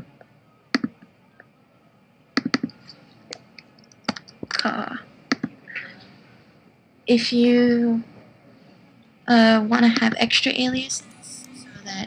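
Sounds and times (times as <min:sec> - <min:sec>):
keyboard keystrokes: 0:02.4 - 0:02.8
computer mouse clicks: 0:02.4 - 0:04.6, 0:05.3 - 0:05.5.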